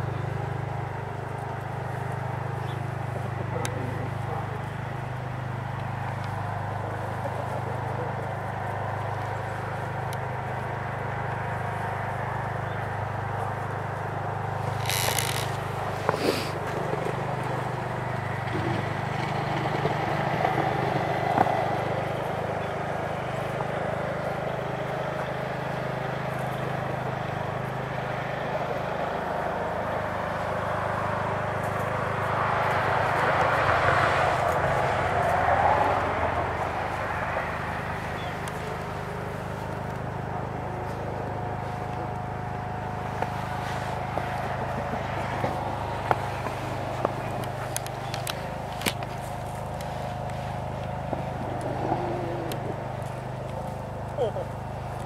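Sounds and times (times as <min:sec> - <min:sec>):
distant road traffic hum: 0:00.0 - 0:55.0
vehicle passing: 0:00.0 - 0:55.0.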